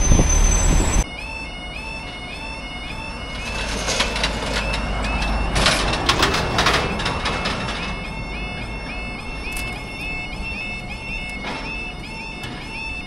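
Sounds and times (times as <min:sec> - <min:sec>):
level crossing warbling alarm: 0:00.0 - 0:13.0
car knocking over crossing: 0:03.3 - 0:10.6.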